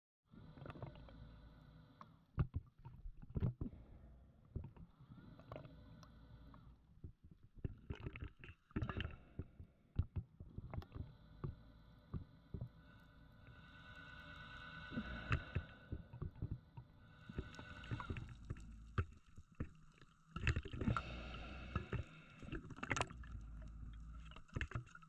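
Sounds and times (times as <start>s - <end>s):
crackling exhaust bubbles: 7.0s - 25.0s.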